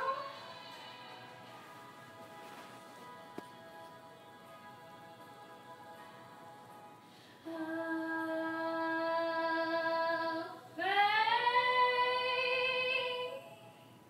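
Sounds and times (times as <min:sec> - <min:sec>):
woman singing unaccompanied: 0:00.0 - 0:00.8, 0:07.4 - 0:13.6
breath: 0:07.0 - 0:07.5.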